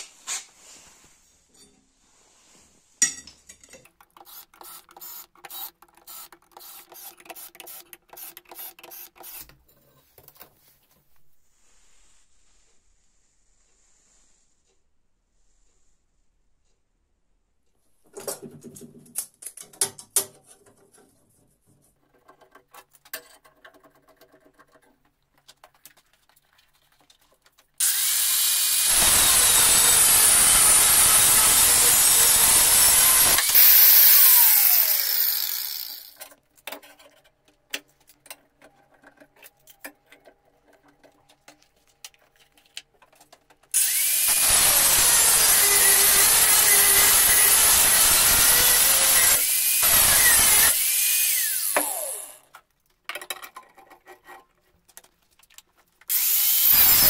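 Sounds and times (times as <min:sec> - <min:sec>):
metal clamps clicking and knocking: 0:03.0 - 0:10.5, 0:36.1 - 0:43.8, 0:52.5 - 0:56.1
angle grinder cutting steel: 0:27.8 - 0:36.2, 0:43.7 - 0:52.5, 0:56.1 - 0:57.0.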